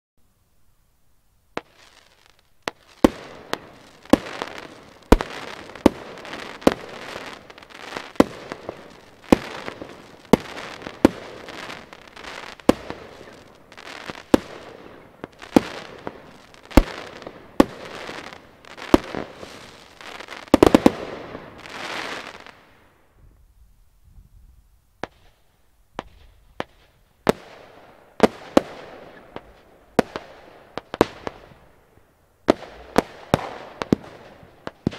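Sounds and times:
fireworks fizzing: 1.6 - 23.0.

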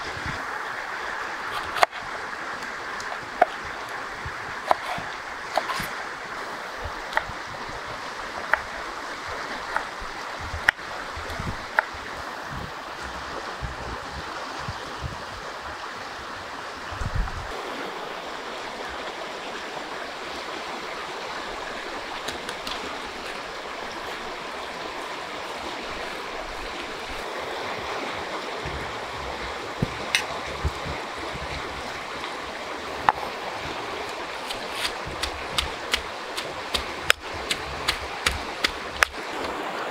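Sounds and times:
flowing river water: 0.0 - 39.9
knife cutting on wooden board: 4.7 - 5.9, 34.4 - 39.5
stone pestle knocking in mortar: 35.1 - 39.2.

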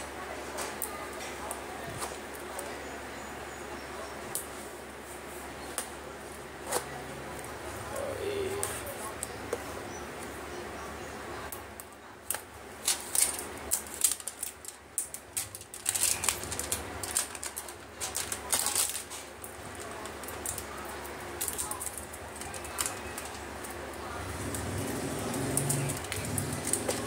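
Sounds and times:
plastic shrink wrap crinkling: 12.2 - 27.0.

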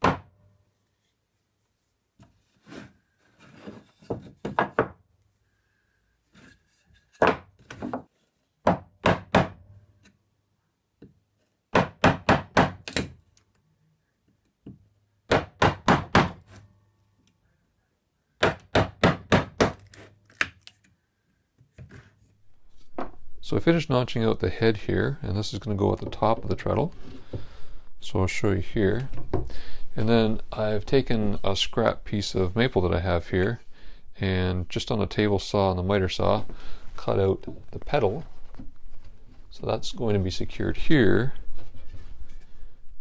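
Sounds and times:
wooden mallet striking chisel: 0.0 - 0.3, 8.6 - 9.6, 11.0 - 13.2, 14.6 - 16.4, 18.4 - 20.0.

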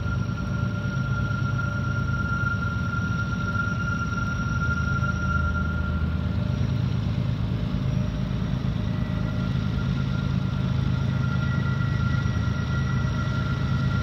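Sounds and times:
diesel locomotive engine drone: 0.0 - 14.0
faint steady whine: 0.0 - 14.0.

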